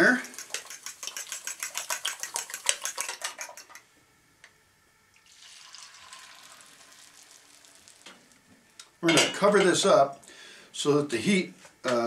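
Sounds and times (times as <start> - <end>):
egg mixture sizzling in pan: 0.0 - 3.8, 5.2 - 8.4
utensil whisking in ceramic bowl: 0.0 - 3.8.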